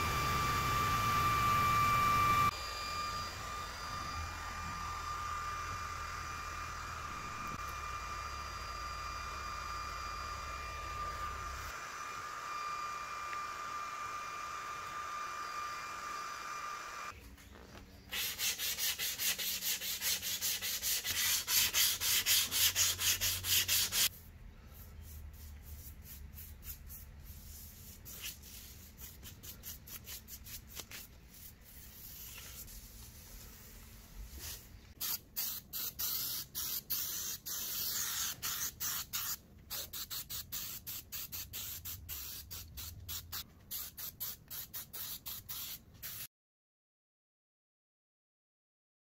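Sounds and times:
sandpaper rubbing on wood: 0:18.1 - 0:24.2, 0:24.8 - 0:46.3.

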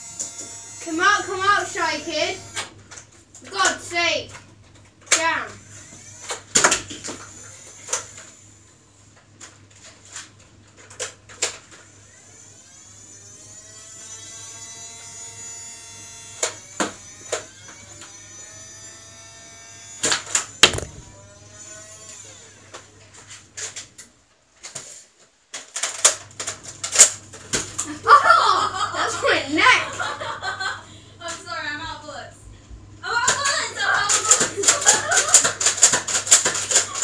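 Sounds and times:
small electric motor whirring: 0:00.0 - 0:02.7, 0:05.4 - 0:08.6, 0:11.8 - 0:22.6
sharp clicks and knocks: 0:20.6 - 0:21.1.

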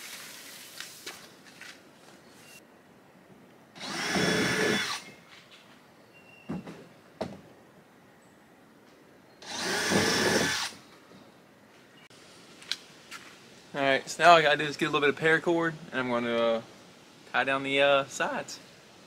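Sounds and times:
power drill driving fastener: 0:03.8 - 0:05.1, 0:09.4 - 0:10.8.

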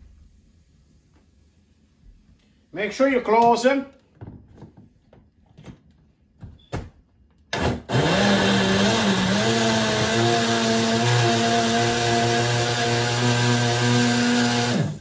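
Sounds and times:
blender motor whine: 0:07.5 - 0:15.0.

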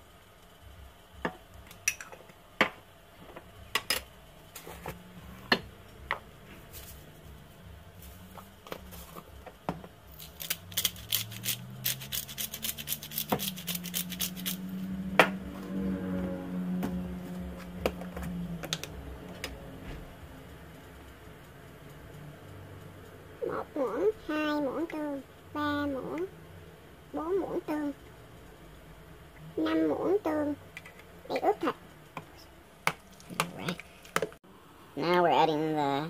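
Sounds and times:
low hum: 0:13.6 - 0:32.8.

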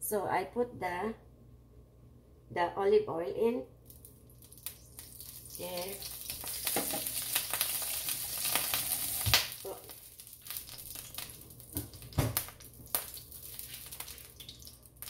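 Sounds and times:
oil sizzling in frying pan: 0:04.4 - 0:15.0.

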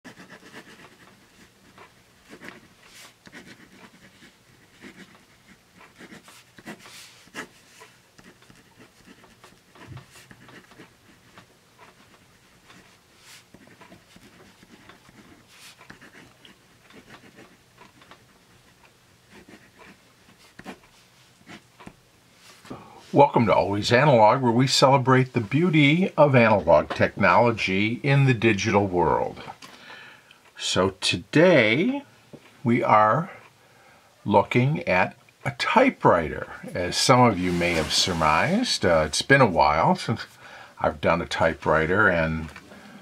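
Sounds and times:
pen nib scratching paper: 0:00.1 - 0:22.0.

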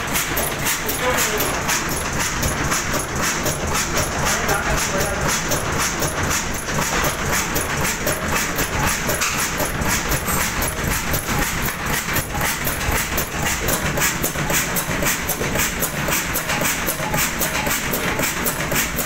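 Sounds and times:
stationary diesel engine running: 0:00.0 - 0:19.0.

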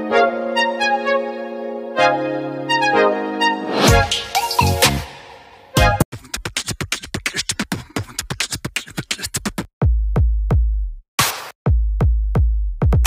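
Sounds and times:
intro music with a beat: 0:02.7 - 0:06.0, 0:09.8 - 0:13.0.

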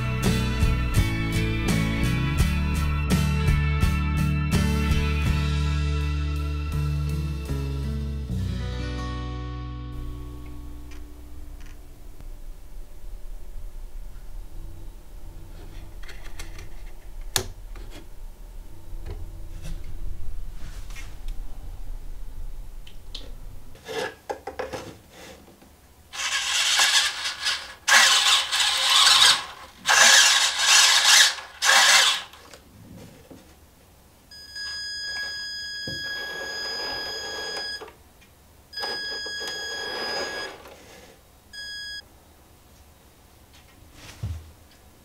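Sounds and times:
rumbling noise: 0:10.0 - 0:23.9.

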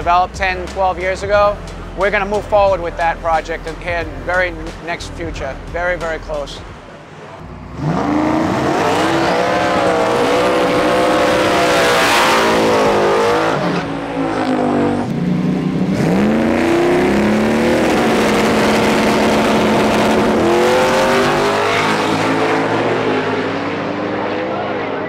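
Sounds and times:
drag car engine revving: 0:06.0 - 0:25.0.

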